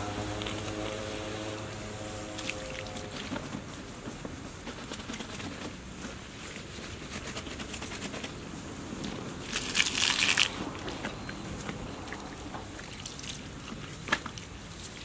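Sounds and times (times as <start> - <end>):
garden hose water hiss: 0.0 - 4.0, 8.6 - 10.8.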